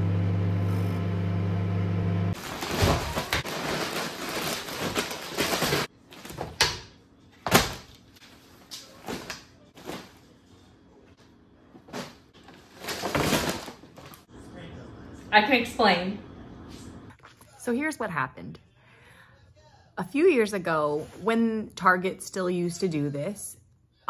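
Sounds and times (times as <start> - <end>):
plastic packaging crinkling: 2.4 - 6.4.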